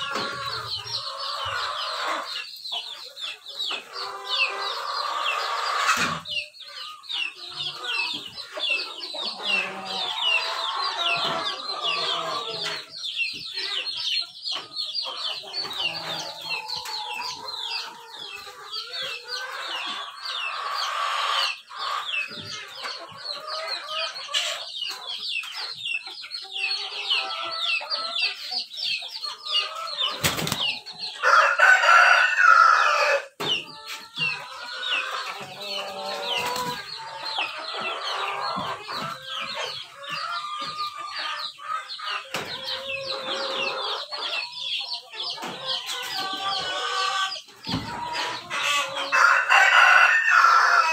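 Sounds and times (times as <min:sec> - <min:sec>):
chickens clucking and calling: 0:00.0 - 0:50.9.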